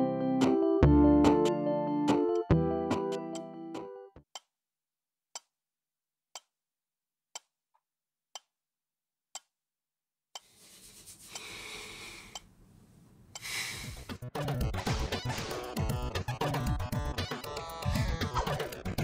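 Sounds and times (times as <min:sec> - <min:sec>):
clock ticking: 0:12.3 - 0:12.5.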